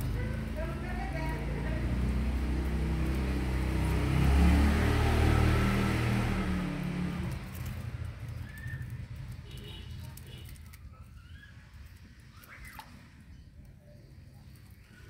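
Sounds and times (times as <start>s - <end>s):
vehicle engine passing by: 0.0s - 9.5s.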